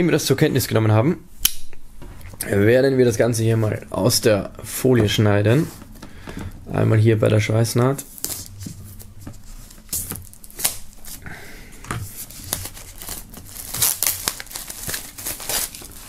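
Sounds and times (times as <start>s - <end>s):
plastic film crinkling: 8.0s - 11.2s, 12.0s - 16.0s
knife slitting plastic film: 9.9s - 11.1s, 12.2s - 16.0s.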